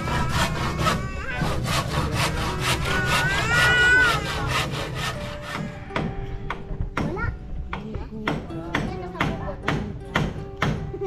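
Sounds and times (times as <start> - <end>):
hand saw cutting wood: 0.0 - 6.1.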